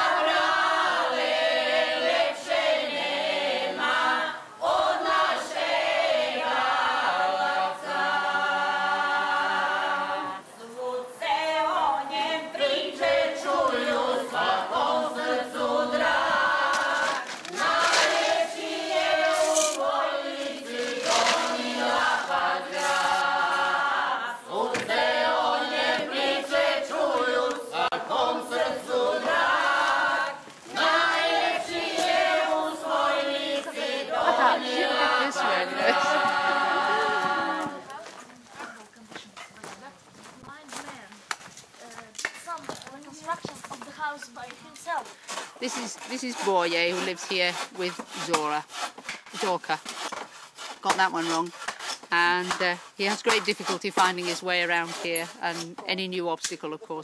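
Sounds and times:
choir singing folk song: 0.0s - 38.2s.

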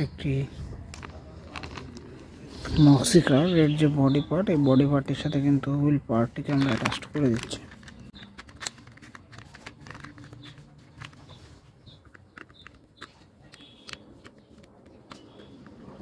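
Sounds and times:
plastic toy parts clicking: 6.4s - 15.8s.

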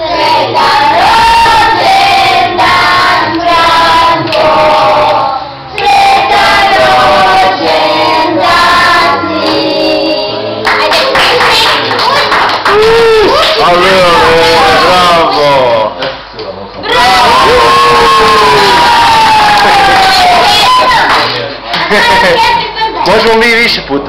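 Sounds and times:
group of people singing: 0.0s - 11.5s.

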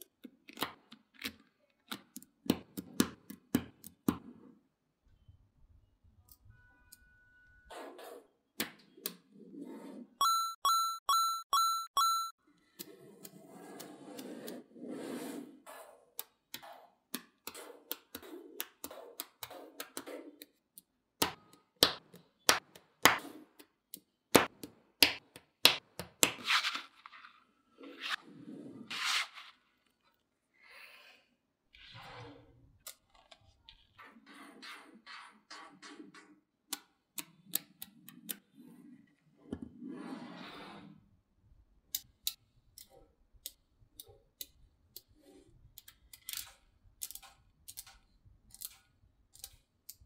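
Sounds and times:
ringing dings: 10.2s - 12.4s.

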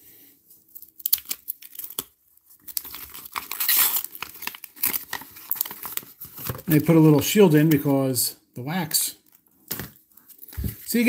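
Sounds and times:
paper wrapper tearing and crinkling: 0.8s - 6.8s.

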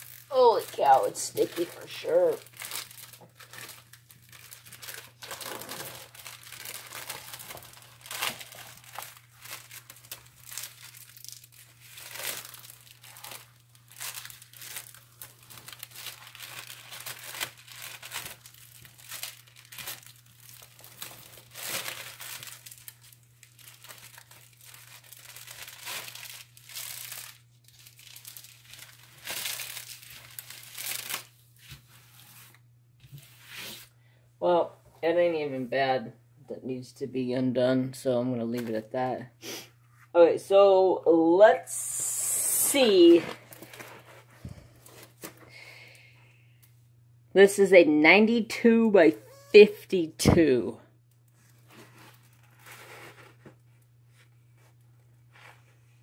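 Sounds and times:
plastic film crinkling and rustling: 0.0s - 33.2s, 42.8s - 45.6s, 51.0s - 56.0s.

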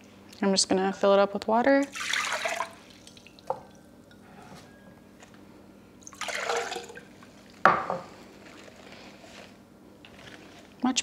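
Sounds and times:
water pouring and splashing: 1.8s - 3.5s, 6.1s - 7.1s.

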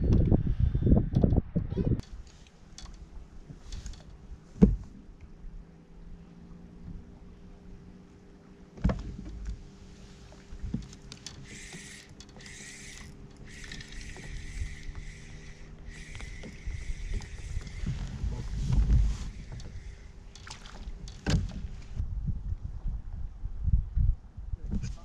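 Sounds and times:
knocks against kayak hull: 4.6s - 4.9s
fishing reel whirring: 10.9s - 21.2s.

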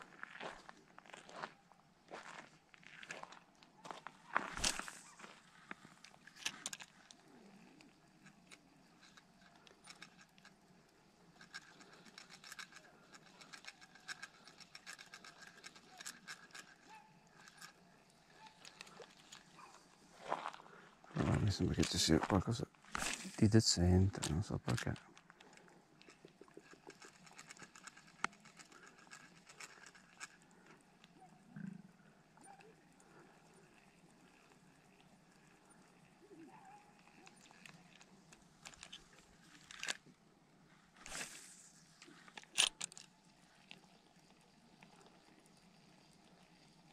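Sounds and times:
fishing reel ticking: 11.2s - 19.6s.

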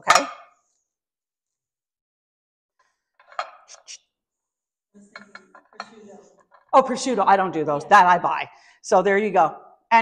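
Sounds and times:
glassware clinking: 0.0s - 0.6s.

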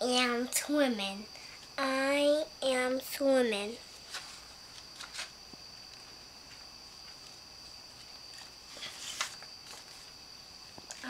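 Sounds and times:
faint high-pitched whine: 0.0s - 11.0s
paper pages turning: 4.0s - 5.3s, 8.0s - 10.1s.

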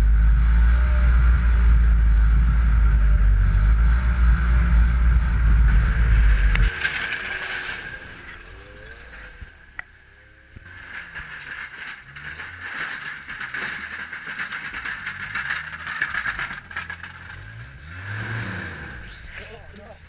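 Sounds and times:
snowmobile engines running: 0.0s - 20.0s
rattling and clattering: 4.9s - 18.2s.

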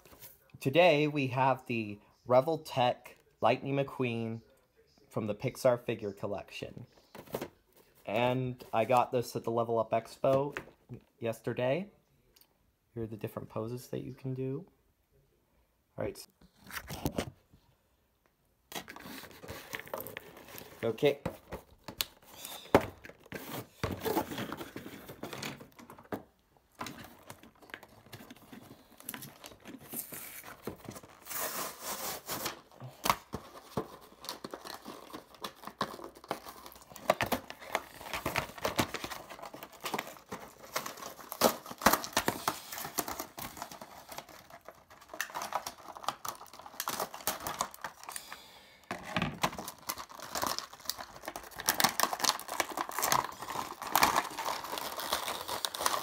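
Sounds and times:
packaging crinkling and tearing: 18.7s - 56.0s.

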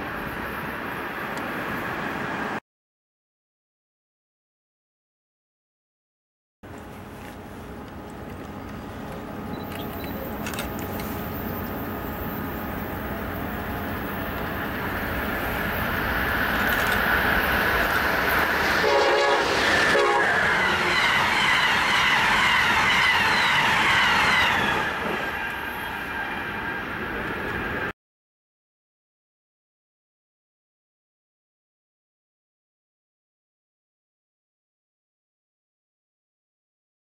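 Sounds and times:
train wheels rushing on rail: 6.7s - 27.9s
train horn blasts: 18.8s - 21.0s.

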